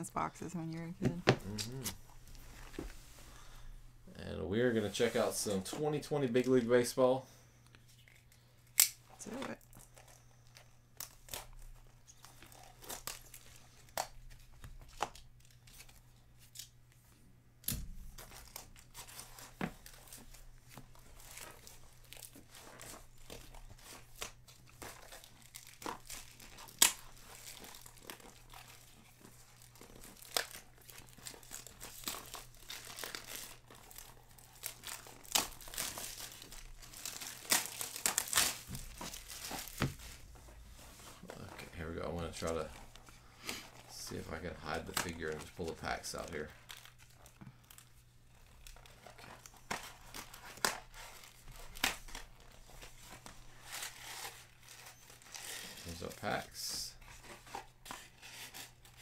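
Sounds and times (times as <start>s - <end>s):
packaging tearing and crinkling: 11.0s - 16.8s, 17.7s - 40.7s, 43.7s - 59.0s.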